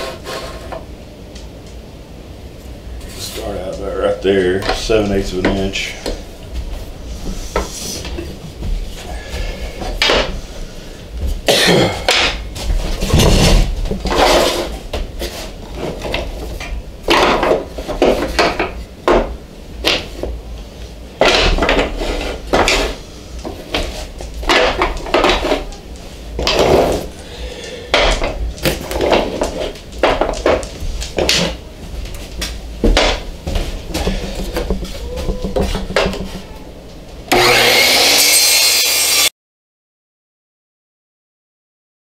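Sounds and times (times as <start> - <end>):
wooden blocks clacking: 21.2 - 26.8, 27.6 - 31.6, 33.9 - 36.7.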